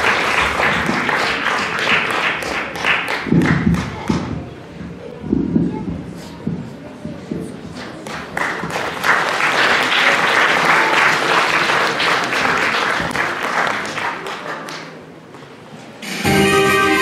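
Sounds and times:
audience applauding: 0.0s - 3.9s, 8.1s - 15.0s.

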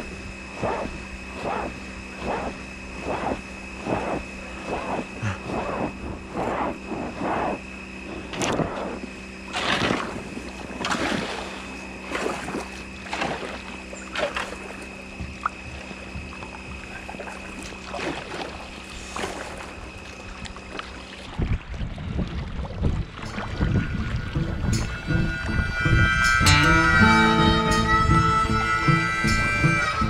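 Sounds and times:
steady hum: 0.0s - 30.0s
paddle splashing in water: 8.2s - 24.7s.

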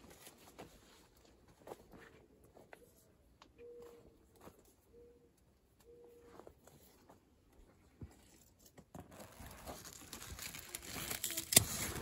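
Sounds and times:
leaves and stems rustling: 9.2s - 12.0s.

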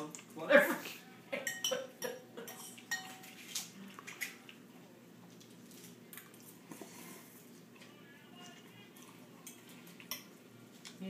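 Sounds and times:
forks clinking on plates: 1.4s - 4.4s.

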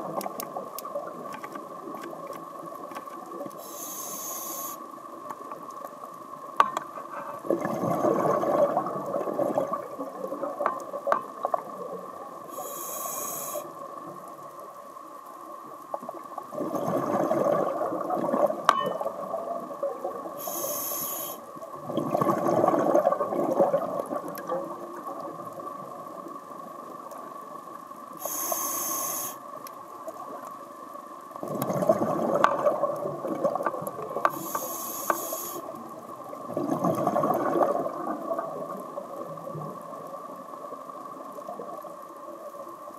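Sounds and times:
diver breathing through regulator: 3.6s - 4.8s, 12.5s - 13.8s, 20.4s - 21.4s, 28.2s - 29.4s, 34.3s - 35.7s
exhaled bubbles: 7.3s - 12.2s, 16.1s - 20.4s, 21.8s - 26.0s, 31.4s - 34.6s, 36.2s - 40.4s.

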